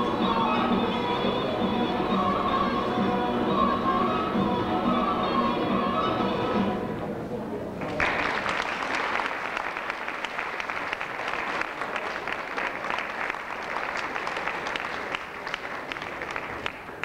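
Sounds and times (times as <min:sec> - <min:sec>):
audience clapping: 0:07.8 - 0:17.0.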